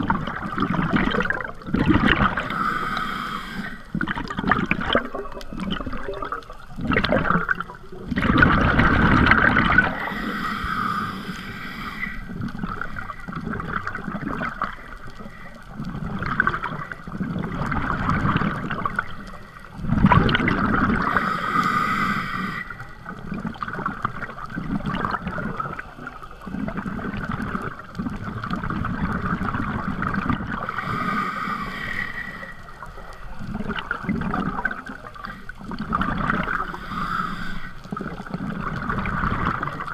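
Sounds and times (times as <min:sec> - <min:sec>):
rush of bubbles: 0:00.0 - 0:15.0, 0:15.8 - 0:22.2, 0:23.1 - 0:32.1, 0:32.9 - 0:39.9
low water rumble: 0:00.0 - 0:39.9
scuba regulator breathing: 0:02.2 - 0:04.2, 0:09.8 - 0:16.1, 0:20.8 - 0:23.2, 0:30.6 - 0:33.7, 0:34.6 - 0:38.3.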